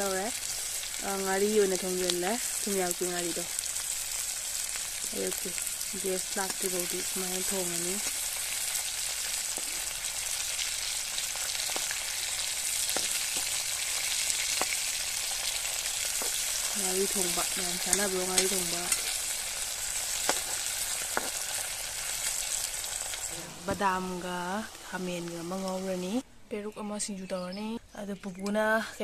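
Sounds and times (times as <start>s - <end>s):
food sizzling in hot oil: 0.0s - 26.2s
metal skimmer scraping pan: 23.2s - 24.3s.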